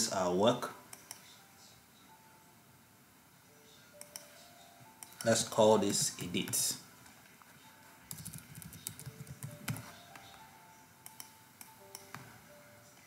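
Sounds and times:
soft background music: 0.0s - 13.0s
computer keyboard typing: 5.0s - 6.6s, 8.0s - 10.4s, 11.0s - 12.2s.

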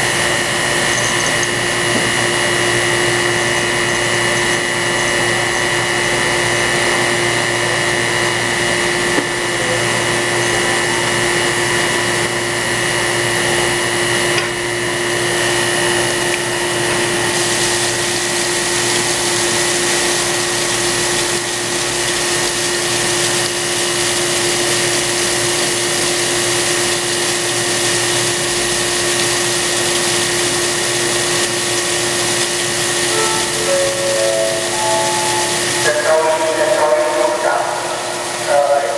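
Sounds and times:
grinding machine whine: 0.0s - 38.9s
coolant spraying hiss: 15.3s - 38.9s.

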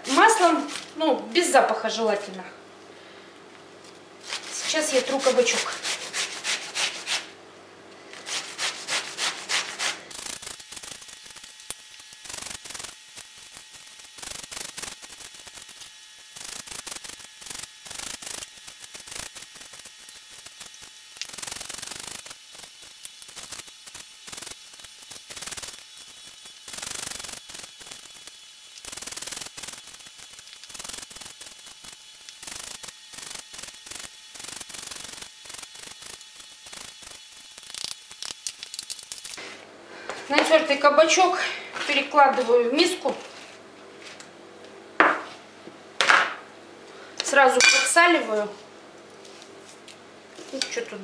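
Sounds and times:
zucchini grated on metal grater: 4.2s - 7.3s, 8.2s - 39.4s.

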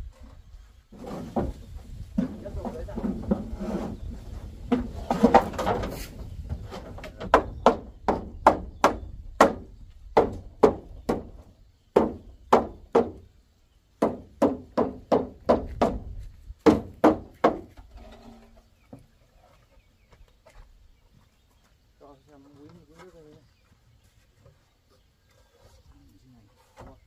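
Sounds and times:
knocks on corrugated metal roof: 6.7s - 13.2s, 14.0s - 17.7s.

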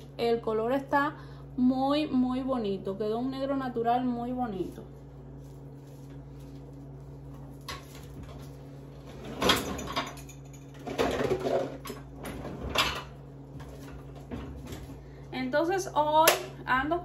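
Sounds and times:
steady low hum: 0.0s - 17.0s
kitchenware clattering in cabinet: 9.1s - 13.2s.

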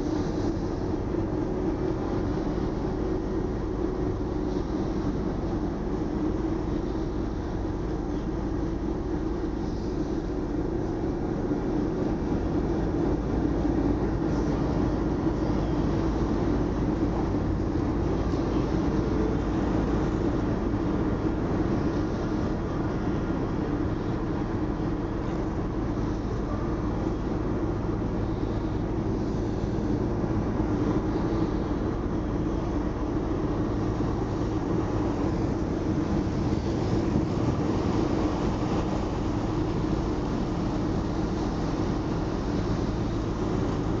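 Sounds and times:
ferry engines droning: 0.0s - 44.0s.

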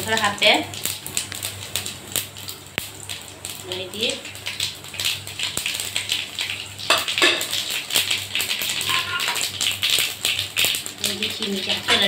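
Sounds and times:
seeds crackling in hot oil: 0.0s - 12.0s
metal spatula scraping pan: 8.8s - 9.4s.

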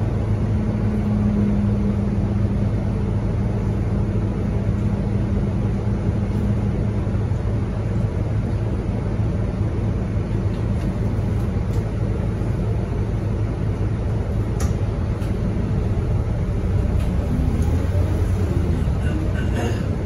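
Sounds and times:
bus diesel engine idling: 0.0s - 20.0s.

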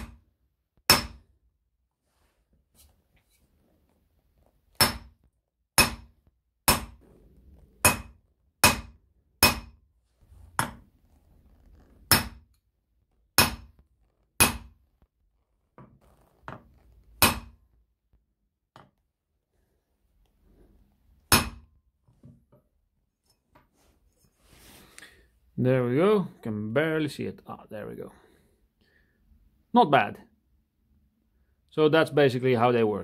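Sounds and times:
hammer striking metal stamp: 5.8s - 6.1s, 7.8s - 9.8s.

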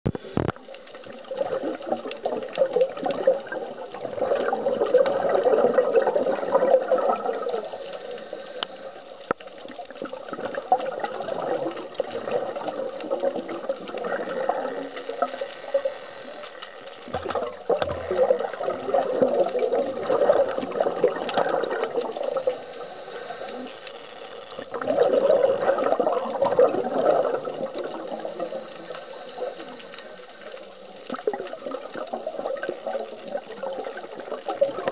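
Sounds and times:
scuba regulator bubbles gurgling: 0.1s - 34.9s
diver breathing underwater: 4.3s - 9.3s, 13.8s - 24.3s, 24.9s - 31.4s.

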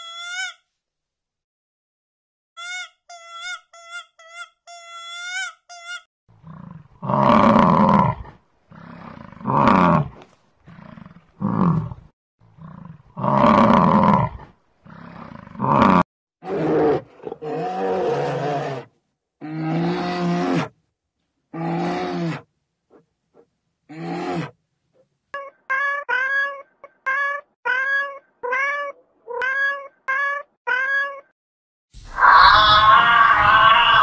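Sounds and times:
high-pitched squeaks: 2.6s - 6.0s
harsh animal roars: 6.4s - 20.8s, 23.9s - 24.6s.

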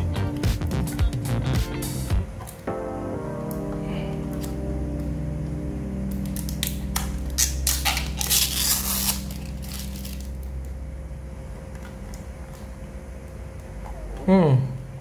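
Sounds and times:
plastic packaging crinkling: 6.2s - 10.6s.

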